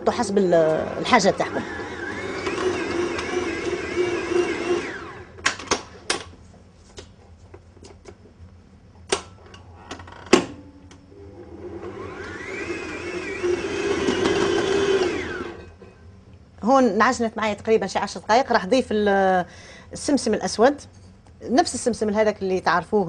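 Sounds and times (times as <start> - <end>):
stand mixer motor humming: 0.8 - 5.4, 11.4 - 15.7.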